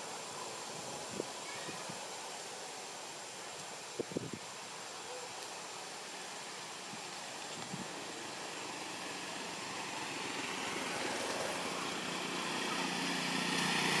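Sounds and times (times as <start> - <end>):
outdoor hiss: 0.0 - 14.0
small engine running: 7.6 - 14.0.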